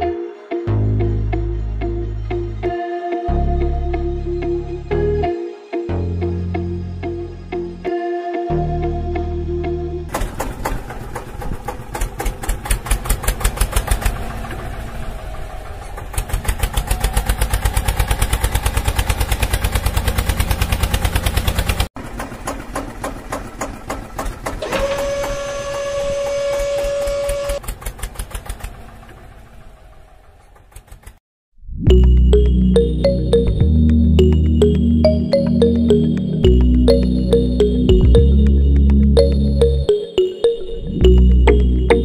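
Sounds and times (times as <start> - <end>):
toy tractor engine chugging: 10.1 - 25.7, 26.8 - 31.2
steady higher tone: 31.7 - 42.0.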